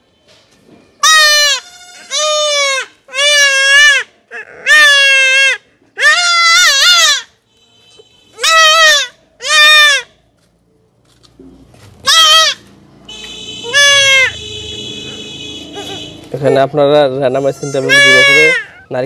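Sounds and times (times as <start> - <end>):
goat kid bleating: 1.0 - 7.3, 8.3 - 10.1, 12.0 - 12.7, 13.6 - 14.4, 15.7 - 16.3, 17.3 - 18.9.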